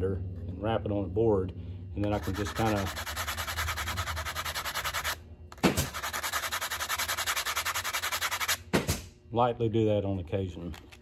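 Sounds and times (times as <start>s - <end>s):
knife scraping on sanding belt: 2.1s - 5.2s, 5.8s - 8.6s.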